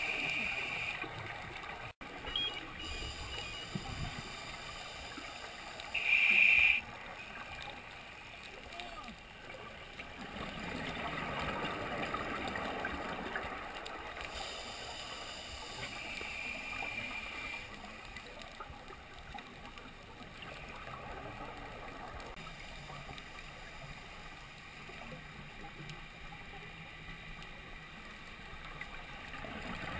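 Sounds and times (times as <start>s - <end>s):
hiss with faint high whistle: 0.0s - 1.1s, 2.3s - 6.9s, 14.3s - 17.8s
underwater hush: 0.0s - 1.2s, 2.2s - 7.6s, 14.3s - 17.8s.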